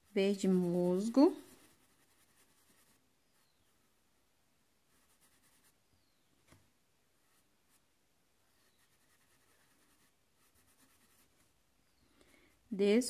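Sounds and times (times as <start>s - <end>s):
paintbrush strokes on fabric: 0.0s - 4.0s, 4.9s - 5.8s, 7.2s - 11.6s.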